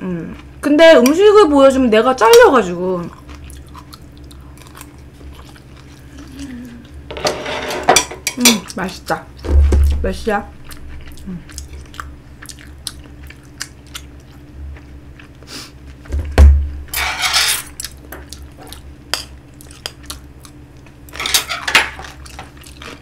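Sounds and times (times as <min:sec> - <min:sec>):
spoon scraping a plate: 0:07.1 - 0:08.4, 0:16.9 - 0:17.8
heavy thump: 0:16.1 - 0:16.8.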